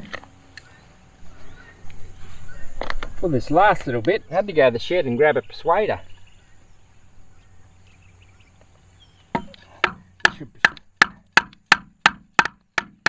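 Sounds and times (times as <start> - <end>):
timber knocking on pipe fitting: 9.4 - 13.0.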